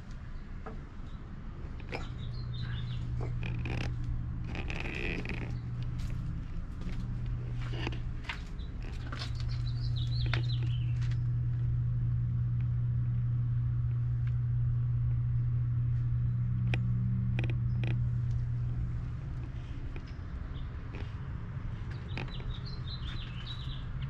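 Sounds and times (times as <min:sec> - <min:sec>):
low hum: 0:00.0 - 0:24.0
sharp clicks: 0:16.6 - 0:18.4.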